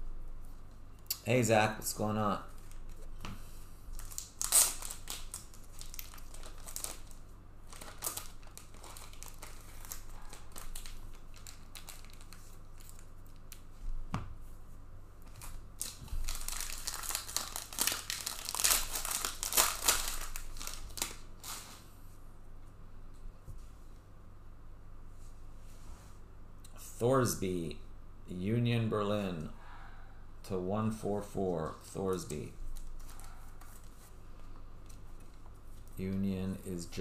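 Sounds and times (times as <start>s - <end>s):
card pack wrapping crinkling: 3.9s - 13.6s, 15.3s - 21.8s.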